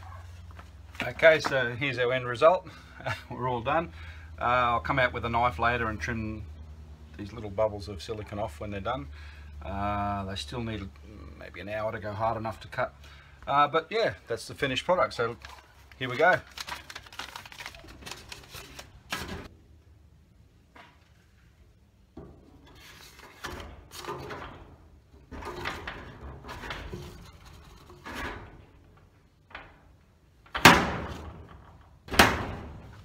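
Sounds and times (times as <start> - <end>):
paper mail rustling and scraping: 14.5 - 19.5, 22.6 - 24.4, 26.5 - 28.4
letterbox snapping shut: 30.5 - 32.9.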